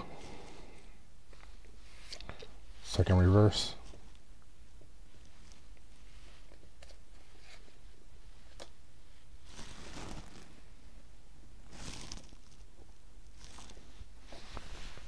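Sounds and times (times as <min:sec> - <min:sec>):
cards swishing: 0:09.5 - 0:10.6, 0:11.7 - 0:12.7, 0:13.3 - 0:15.0.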